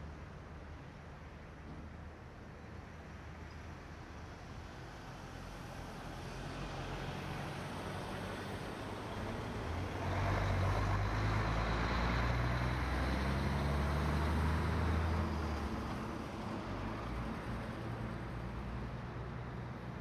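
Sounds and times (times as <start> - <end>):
tyres on road: 0.0 - 20.0
lorry diesel engine passing: 6.5 - 18.5.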